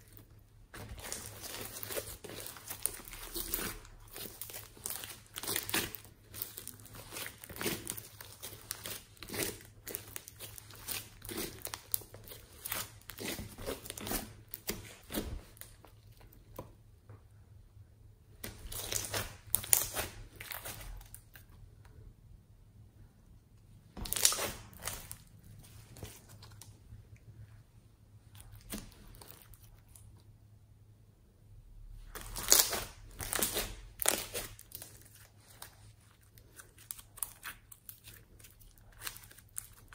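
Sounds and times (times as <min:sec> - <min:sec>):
slime squelching: 0:00.0 - 0:16.6, 0:18.4 - 0:21.9, 0:23.9 - 0:27.4, 0:28.2 - 0:30.3, 0:32.0 - 0:39.9
slime popping: 0:24.0 - 0:25.3.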